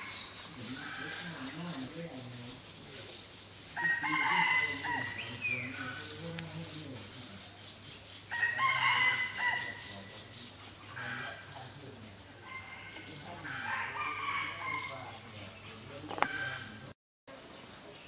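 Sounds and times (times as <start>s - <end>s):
rooster crowing: 3.8s - 5.9s, 8.3s - 10.0s, 12.4s - 15.2s.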